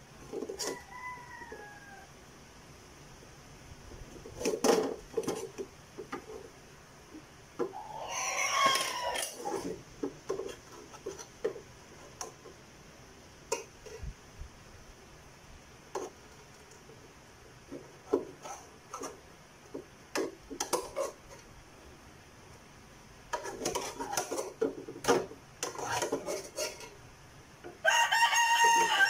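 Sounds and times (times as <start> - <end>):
metal ladle scraping pot: 20.2 - 21.5, 23.3 - 27.0.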